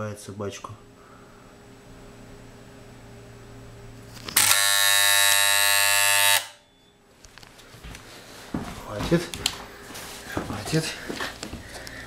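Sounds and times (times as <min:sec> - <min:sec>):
loud electrical buzz: 0:01.8 - 0:06.7.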